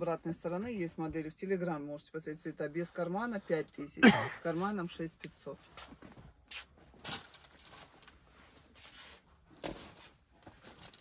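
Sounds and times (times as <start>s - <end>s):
handbags rustling: 5.9s - 9.0s.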